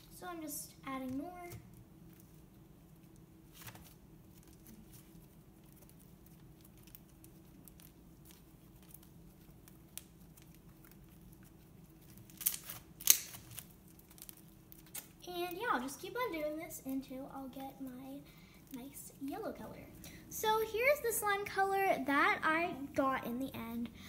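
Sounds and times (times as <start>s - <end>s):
slime crackling pops: 12.3s - 15.2s.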